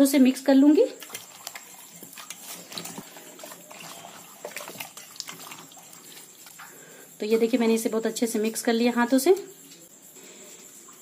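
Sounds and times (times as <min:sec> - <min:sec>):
hands squelching meat in water: 0:01.0 - 0:06.6.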